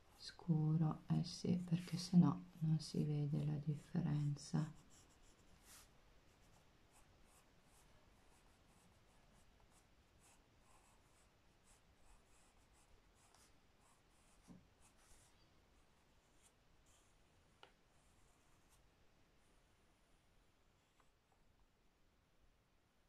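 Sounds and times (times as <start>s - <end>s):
pencil scratching on paper: 4.2s - 17.1s.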